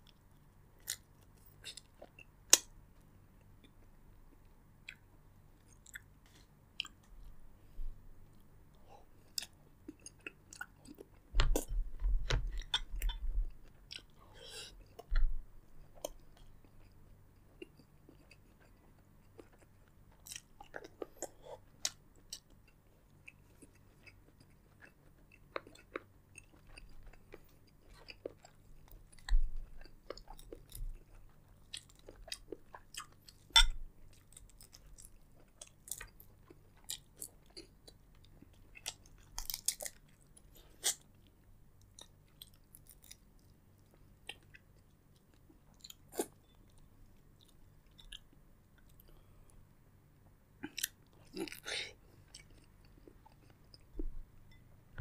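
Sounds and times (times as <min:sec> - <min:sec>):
wet chewing and crunching: 0:09.2 - 0:49.3, 0:50.6 - 0:54.2.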